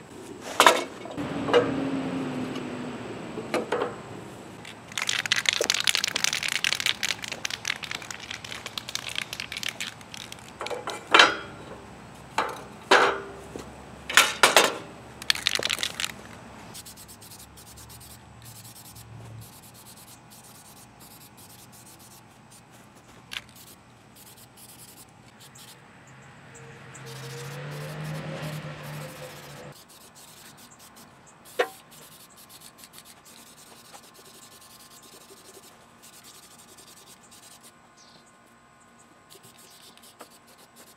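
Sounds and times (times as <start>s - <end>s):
spray can ball rattling: 4.6s - 11.0s, 15.2s - 22.2s, 23.3s - 25.8s
spray bursts hissing: 27.0s - 33.9s.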